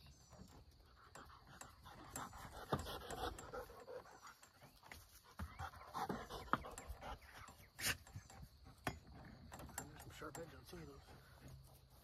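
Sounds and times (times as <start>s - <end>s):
dog panting: 0.7s - 8.6s
wire fence clicks: 7.8s - 11.0s.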